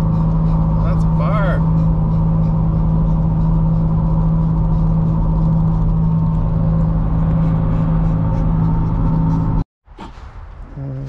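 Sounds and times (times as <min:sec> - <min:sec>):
car engine droning: 0:00.0 - 0:09.6
road and tyre noise: 0:00.0 - 0:11.0.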